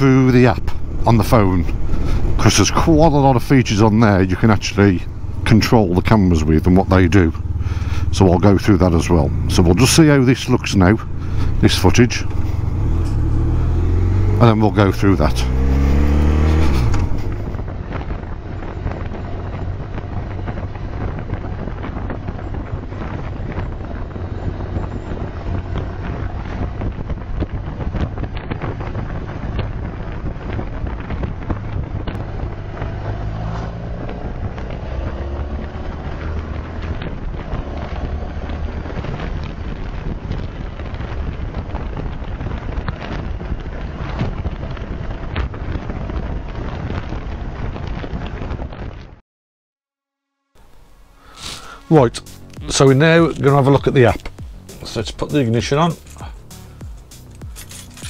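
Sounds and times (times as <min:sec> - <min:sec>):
wind and road noise: 0:00.0 - 0:49.2, 0:50.4 - 0:58.0
motorcycle engine running: 0:00.6 - 0:43.0.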